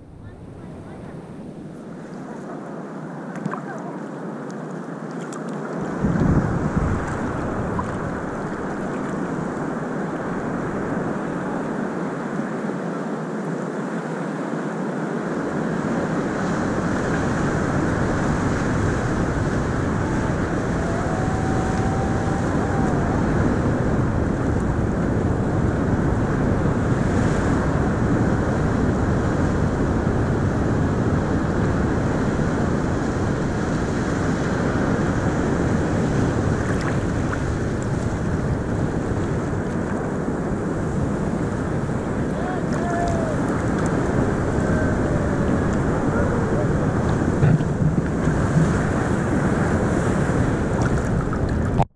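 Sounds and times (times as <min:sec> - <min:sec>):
wind noise on microphone: 0:00.0 - 0:03.9, 0:04.9 - 0:51.9
water lapping: 0:00.0 - 0:11.8, 0:35.8 - 0:51.8
ocean surf rushing: 0:00.0 - 0:51.8
deep rumble: 0:43.2 - 0:49.4.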